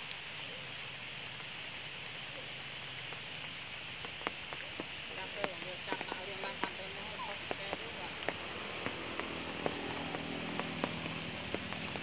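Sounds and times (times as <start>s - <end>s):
steady rain hiss: 0.0s - 12.0s
sharp rain drop taps: 2.8s - 12.0s.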